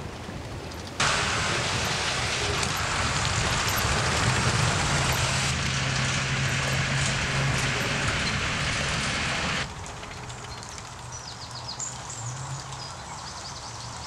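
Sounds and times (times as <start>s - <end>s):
tracked vehicle engine and tracks: 0.2s - 11.1s.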